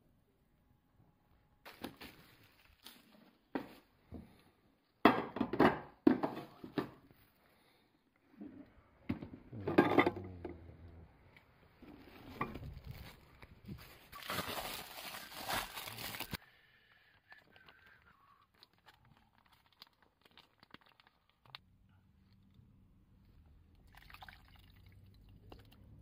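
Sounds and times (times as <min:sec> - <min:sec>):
plastic wrap crinkling: 0:12.1 - 0:16.4, 0:17.4 - 0:21.6.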